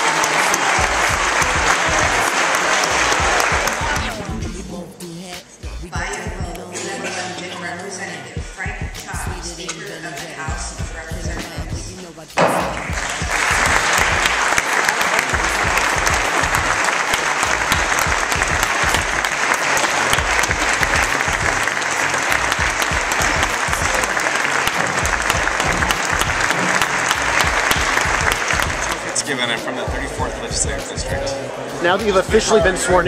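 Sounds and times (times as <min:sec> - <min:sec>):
crowd applause: 0:00.0 - 0:04.4, 0:12.5 - 0:31.0.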